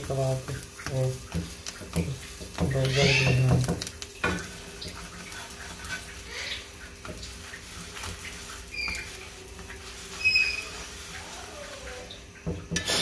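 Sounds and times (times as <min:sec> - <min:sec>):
metal spatula scraping griddle: 0:04.4 - 0:12.0.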